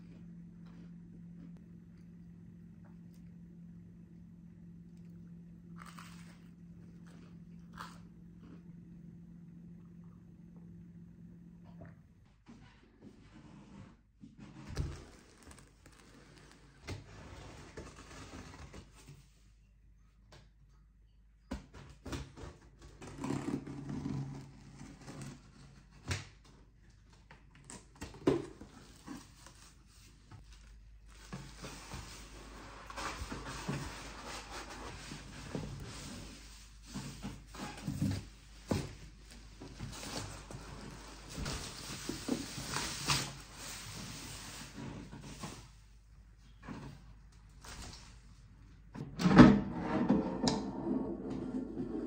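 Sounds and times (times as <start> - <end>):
plastic wrap crinkling: 14.7 - 16.8.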